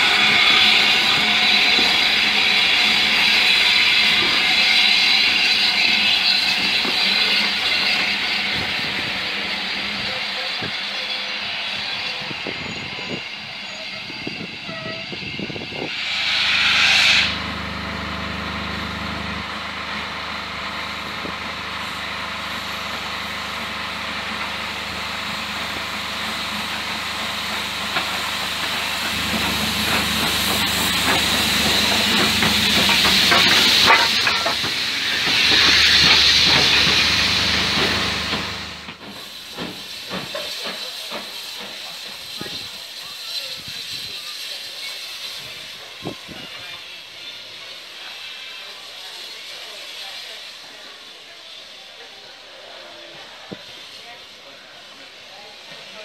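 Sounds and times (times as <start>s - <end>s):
loud burst of steam: 0.0s - 56.0s
steam locomotive hissing: 0.0s - 56.0s
locomotive exhaust beats: 17.3s - 43.0s.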